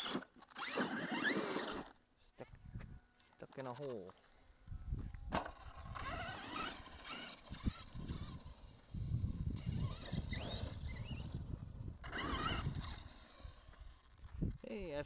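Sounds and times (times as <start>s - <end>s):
electric motor whining: 0.0s - 1.9s, 5.4s - 14.6s.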